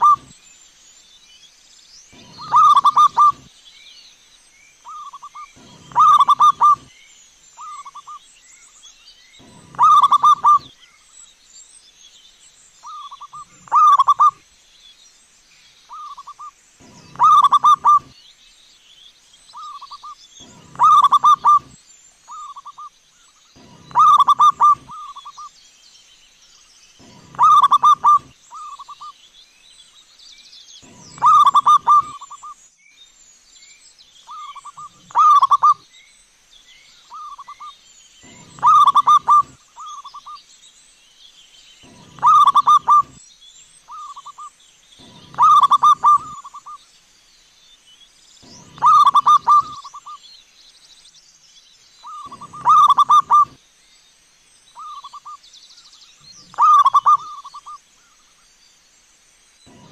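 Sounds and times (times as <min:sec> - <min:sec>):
dove cooing: 0:00.0 - 0:00.3, 0:02.2 - 0:03.5, 0:04.9 - 0:06.9, 0:09.4 - 0:10.7, 0:12.9 - 0:14.4, 0:15.9 - 0:18.1, 0:19.6 - 0:22.8, 0:23.6 - 0:25.4, 0:27.0 - 0:29.0, 0:30.8 - 0:32.5, 0:34.3 - 0:35.8, 0:37.2 - 0:40.2, 0:41.8 - 0:43.2, 0:45.0 - 0:46.8, 0:48.4 - 0:50.2, 0:52.1 - 0:53.6, 0:56.5 - 0:57.8, 0:59.7 - 0:59.9
faint small birds chirping: 0:00.0 - 0:59.9.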